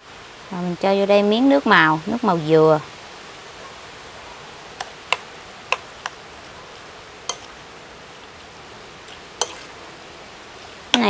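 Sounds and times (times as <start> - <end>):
steady background hiss: 0.0 - 11.0
metal spoon clinking on ceramic bowl: 7.3 - 7.5.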